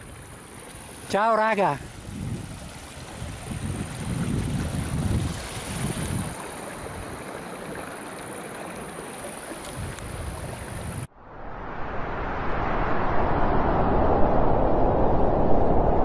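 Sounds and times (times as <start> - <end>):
wind rumbling on microphone: 1.8 - 8.0, 9.5 - 16.0.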